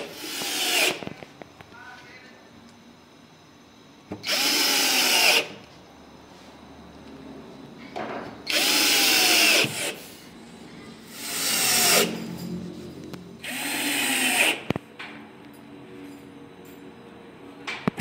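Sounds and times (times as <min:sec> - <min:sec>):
cordless drill drilling into board: 0:00.0 - 0:01.0, 0:04.2 - 0:05.6, 0:08.5 - 0:10.0, 0:11.1 - 0:12.1, 0:13.4 - 0:14.7.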